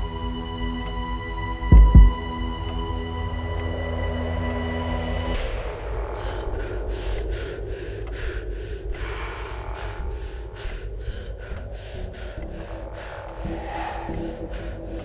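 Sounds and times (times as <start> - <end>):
low droning rumble: 1.7 - 15.0
person breathing hard: 5.4 - 15.0.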